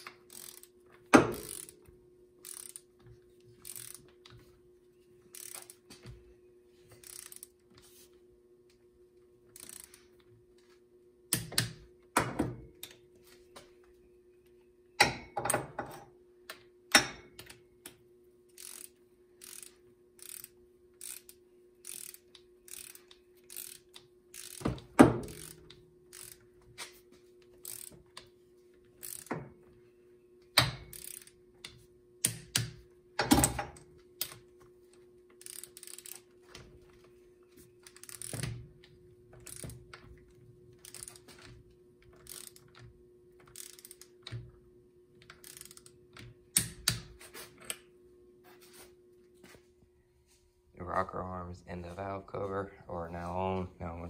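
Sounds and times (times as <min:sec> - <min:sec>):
socket ratchet clicking: 0:00.0 - 0:02.9, 0:03.6 - 0:04.3, 0:05.3 - 0:05.8, 0:07.0 - 0:07.6, 0:18.5 - 0:26.5, 0:35.3 - 0:36.3, 0:37.8 - 0:40.0, 0:40.8 - 0:41.3, 0:42.1 - 0:42.8, 0:43.4 - 0:44.4, 0:45.2 - 0:47.1.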